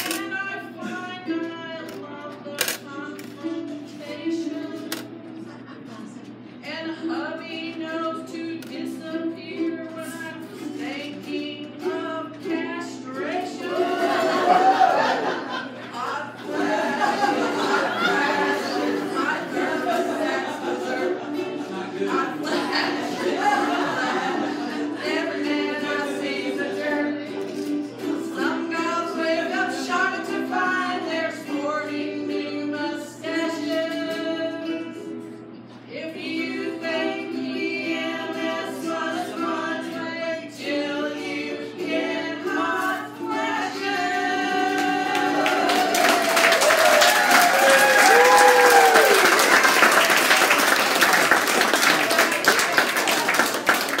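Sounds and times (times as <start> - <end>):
strummed ukulele: 0.0 - 54.0
person singing: 6.6 - 15.2, 16.0 - 49.5
audience applause: 45.1 - 54.0.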